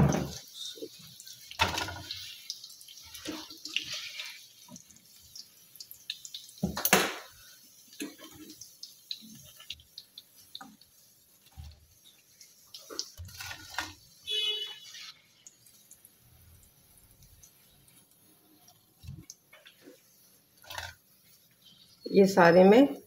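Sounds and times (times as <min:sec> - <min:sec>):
food sizzling in hot oil: 0:00.0 - 0:23.0
spatula scraping frying pan: 0:01.6 - 0:04.7, 0:10.6 - 0:15.2, 0:19.6 - 0:21.6.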